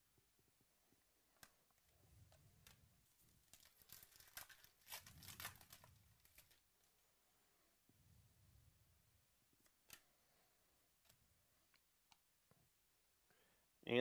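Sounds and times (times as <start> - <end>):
foil wrapper tearing and crinkling: 3.4 - 6.6.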